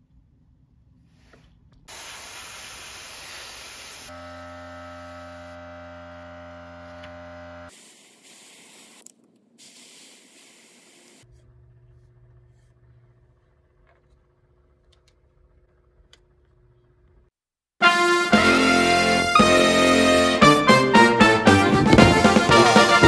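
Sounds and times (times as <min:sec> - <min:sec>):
airbrush hissing: 0:01.1 - 0:04.1, 0:07.7 - 0:11.4.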